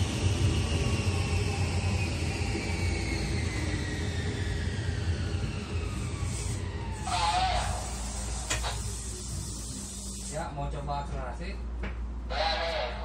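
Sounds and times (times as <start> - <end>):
electric train motors whining: 1.6 - 10.4.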